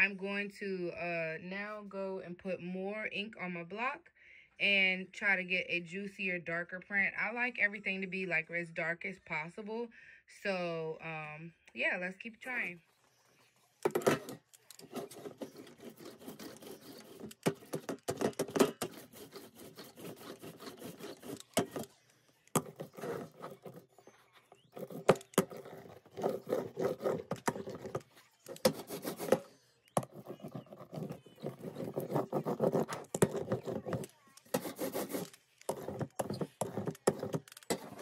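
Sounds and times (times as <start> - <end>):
ink roller rolling stickily: 13.0 - 38.0.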